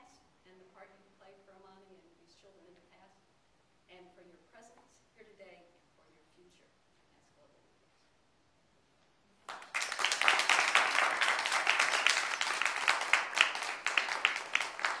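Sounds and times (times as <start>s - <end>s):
audience applauding: 9.5s - 15.0s.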